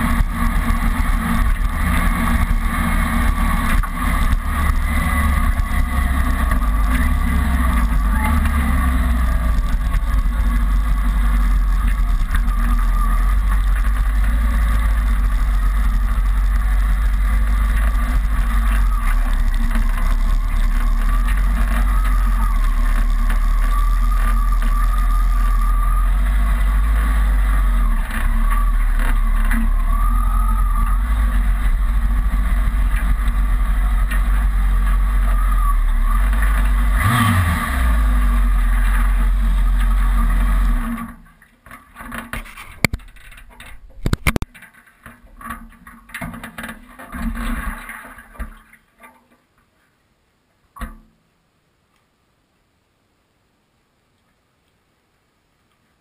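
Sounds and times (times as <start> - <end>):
motorcycle engine running: 0.0 - 41.3
clicks and knocks: 41.7 - 49.4.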